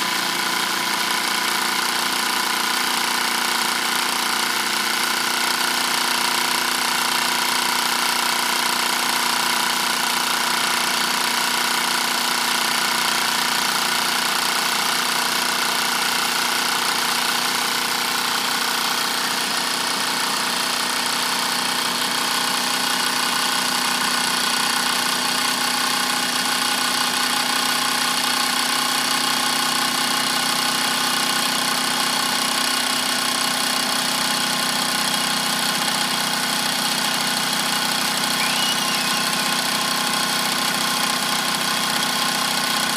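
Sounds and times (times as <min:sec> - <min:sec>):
toy steam engine whirring: 0:38.1 - 0:40.0.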